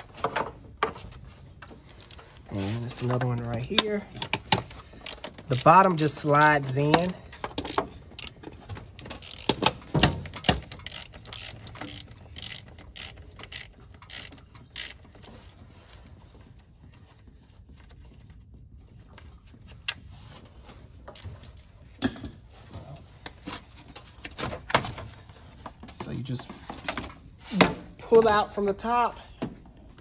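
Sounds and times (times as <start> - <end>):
hand ratchet clicking: 3.6 - 15.3.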